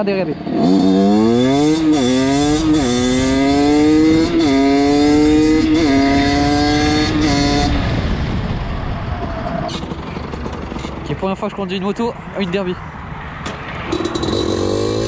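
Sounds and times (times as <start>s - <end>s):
dirt bike engine revving: 0.4s - 8.1s, 13.8s - 15.0s.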